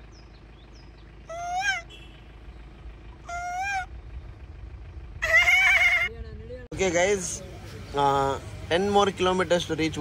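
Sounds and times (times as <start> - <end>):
moving vehicle rumble: 0.0 - 10.0
high-pitched animal calls: 1.3 - 1.9, 3.2 - 4.0, 5.2 - 6.1.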